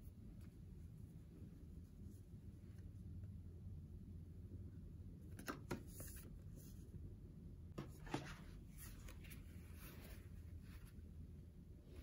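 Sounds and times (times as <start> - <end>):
soft paper rustle: 7.8 - 11.2.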